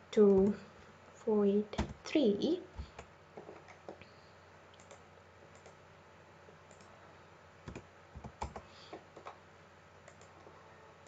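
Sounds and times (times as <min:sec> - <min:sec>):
computer keyboard keystrokes: 0:04.8 - 0:05.8, 0:07.7 - 0:09.4, 0:10.0 - 0:10.3.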